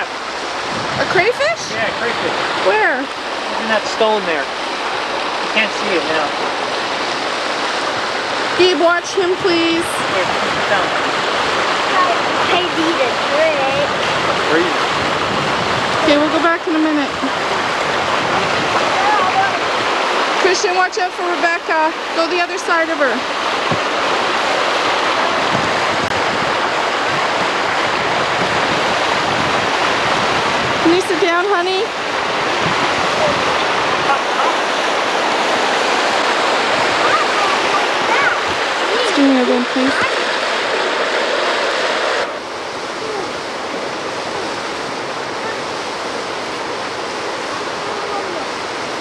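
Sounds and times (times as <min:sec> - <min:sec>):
white water rushing over rapids: 0:00.0 - 0:49.0.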